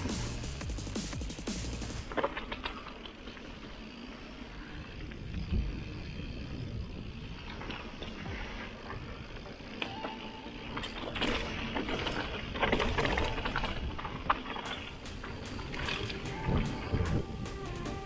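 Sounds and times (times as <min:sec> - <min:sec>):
bike tyres rattling on trail: 0:00.0 - 0:18.0
wind on microphone: 0:15.3 - 0:17.7.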